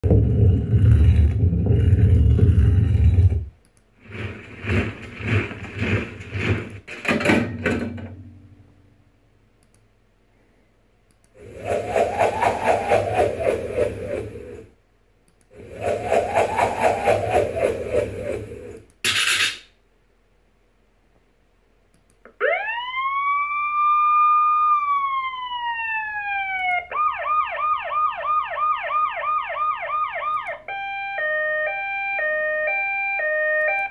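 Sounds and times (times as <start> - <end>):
rising and falling pitch sounds: 11.4 - 14.7, 15.6 - 18.8
uneven pulsing sound effect: 11.4 - 14.7, 15.6 - 18.9.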